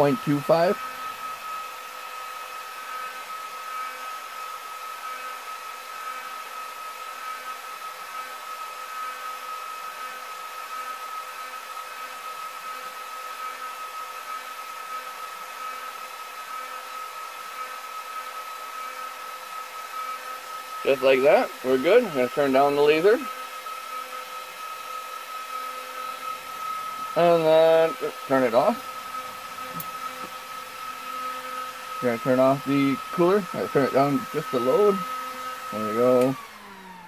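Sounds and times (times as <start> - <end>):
cooling fans whirring: 0.0 - 9.3, 11.8 - 37.0
high-pitched whine: 25.8 - 35.1.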